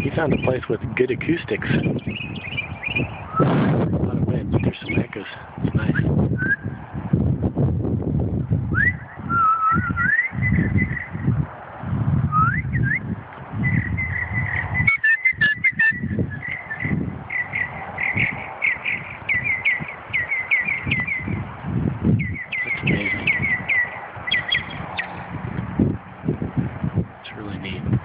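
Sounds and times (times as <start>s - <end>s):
wind rumble on microphone: 0.0s - 28.0s
songbird whistling: 1.8s - 3.5s, 5.9s - 6.7s, 8.7s - 11.2s, 12.3s - 21.4s, 22.2s - 25.2s.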